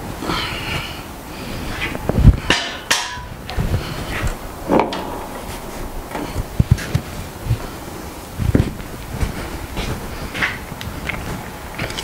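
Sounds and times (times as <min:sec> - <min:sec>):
metal knocks and clanks: 0:02.4 - 0:07.8
metal ringing: 0:04.3 - 0:08.0.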